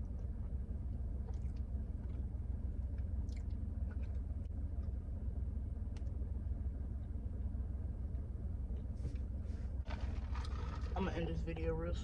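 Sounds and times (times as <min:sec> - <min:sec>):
faint chewing: 0:00.0 - 0:05.0
car idling hum: 0:00.0 - 0:12.0.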